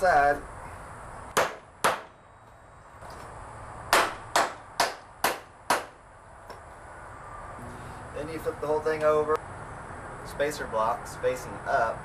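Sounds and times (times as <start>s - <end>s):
hammer driving nails into wood: 1.4s - 2.1s, 3.9s - 6.0s.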